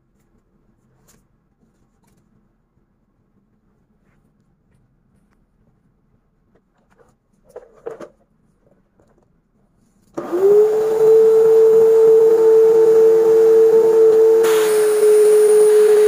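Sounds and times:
vacuum cleaner motor running: 10.2s - 16.0s.

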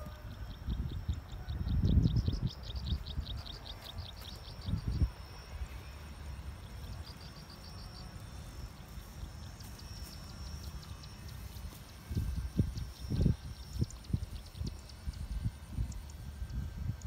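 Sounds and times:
wind buffeting microphone: 0.0s - 5.7s, 10.9s - 17.0s
high insect buzz: 0.0s - 17.0s
rapid high chirps: 0.2s - 17.0s.

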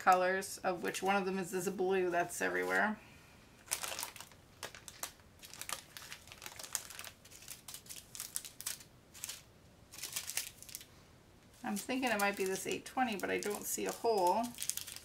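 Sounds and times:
plastic bags crinkling: 3.6s - 10.9s, 11.5s - 15.0s.

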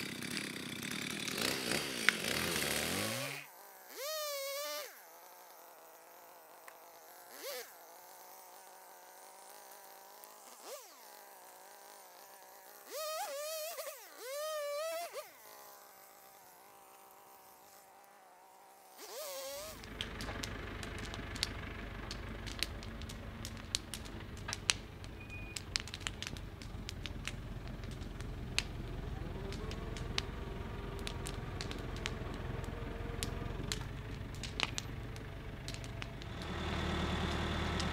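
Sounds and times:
bonfire crackling: 0.0s - 13.8s, 19.4s - 37.9s
tractor engine running: 19.7s - 37.9s.

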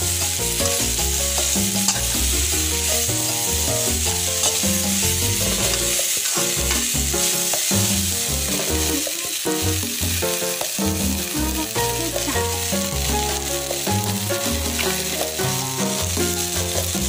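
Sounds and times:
metal spatula stirring: 0.0s - 9.6s, 10.2s - 17.0s
background music with bass line: 0.0s - 17.0s
food sizzling in oil in a wok: 0.0s - 17.0s.

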